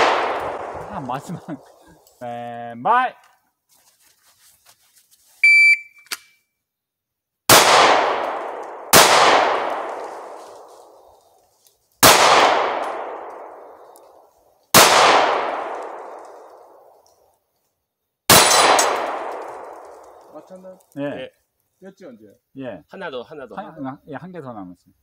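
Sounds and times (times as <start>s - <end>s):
handgun shots: 7.5s - 10.3s, 14.7s - 16.1s, 18.3s - 19.8s.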